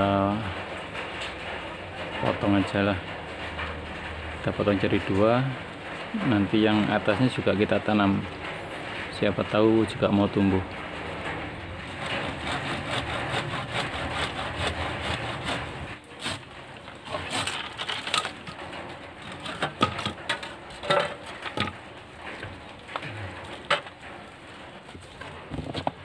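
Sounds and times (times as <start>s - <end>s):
hand saw cutting bamboo: 11.9s - 18.6s
bamboo cracking: 11.9s - 26.0s.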